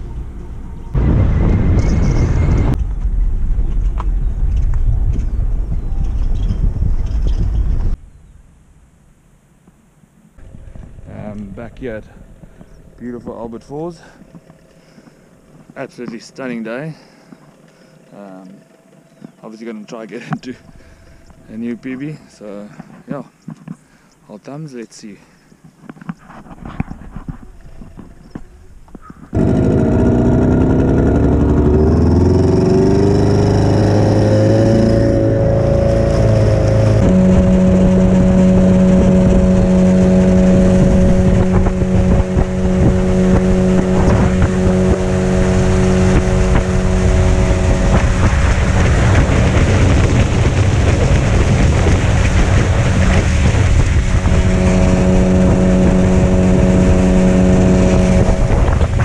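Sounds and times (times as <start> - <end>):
outboard motor running: 29.0 - 59.0
rush of wind and water: 29.3 - 59.0.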